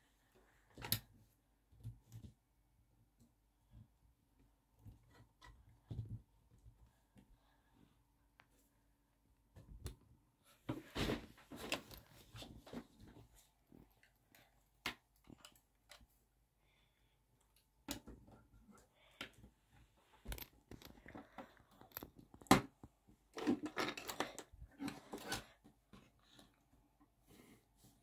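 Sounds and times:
plastic bricks clicking and rattling: 20.2 - 22.5, 23.4 - 25.2.

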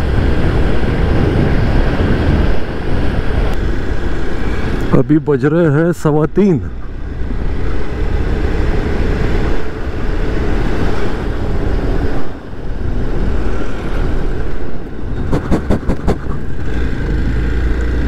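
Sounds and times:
wind rushing over microphone: 0.0 - 18.0
motorcycle engine running: 6.7 - 18.0.

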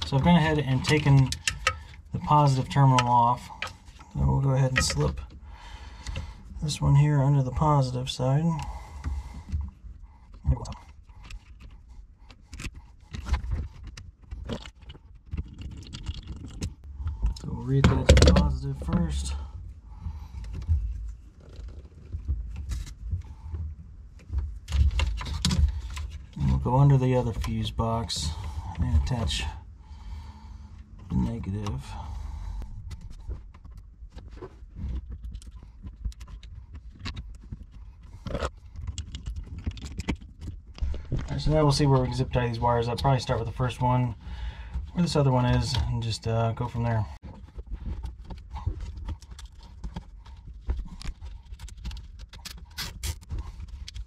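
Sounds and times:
metallic clicks and scrapes: 32.7 - 43.8, 47.8 - 54.0
small metal and plastic clicks: 35.1 - 40.8.

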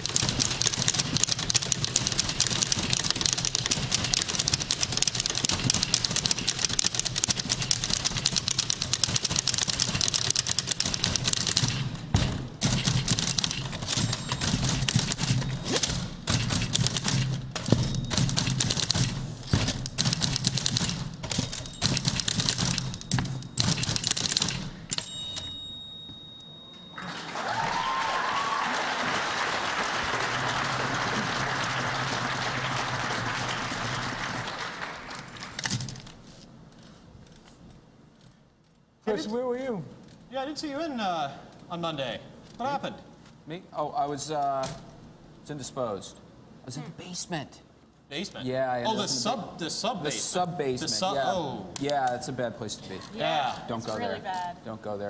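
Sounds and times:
typewriter bells dinging: 0.0 - 12.0, 12.6 - 27.2
typewriters clattering rhythmically: 0.0 - 24.8, 29.6 - 35.9
audience applauding: 26.9 - 35.6.

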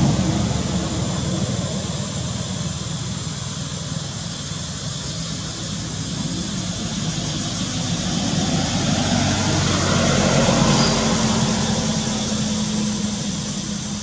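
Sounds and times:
motor vehicle passing: 5.6 - 14.0.

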